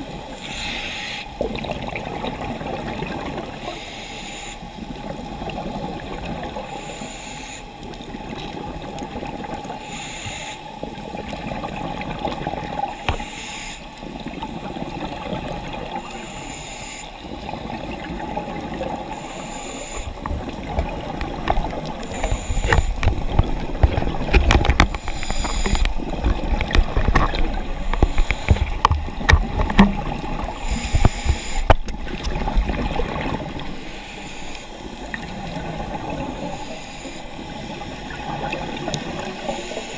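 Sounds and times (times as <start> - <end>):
diver breathing through regulator: 0.3 - 1.3, 9.8 - 10.7, 16.0 - 17.1, 19.1 - 20.3, 21.5 - 23.2, 24.7 - 26.0, 27.6 - 28.9, 30.5 - 31.8, 33.6 - 34.8
low underwater rumble: 20.1 - 33.9
clicks and knocks: 22.6 - 30.1.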